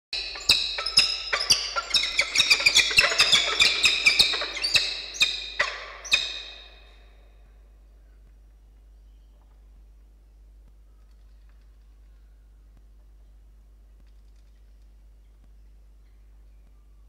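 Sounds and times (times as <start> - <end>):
falcon harsh ringing calls: 0.2 - 7.1.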